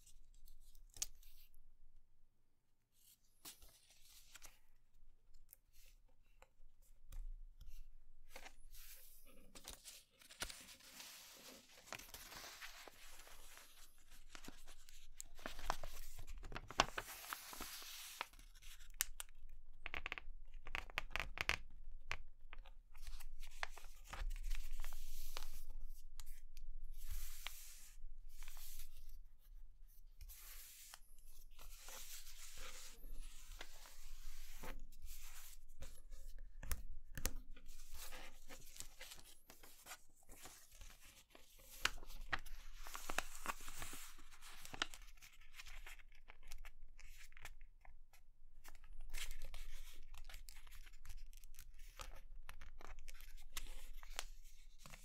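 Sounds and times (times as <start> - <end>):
paper crinkling as folded: 9.6 - 19.0, 31.6 - 47.6.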